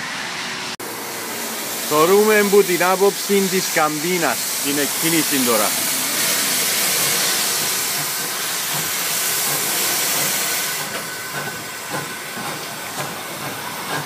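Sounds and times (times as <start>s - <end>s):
steam hissing: 0.0s - 14.0s.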